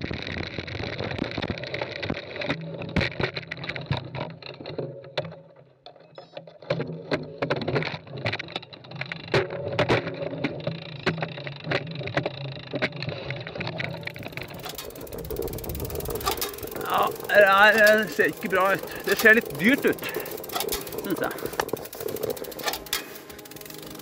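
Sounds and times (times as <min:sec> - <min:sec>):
bicycle knocking on wooden planks: 0:00.0 - 0:24.0
low hum: 0:13.7 - 0:24.0.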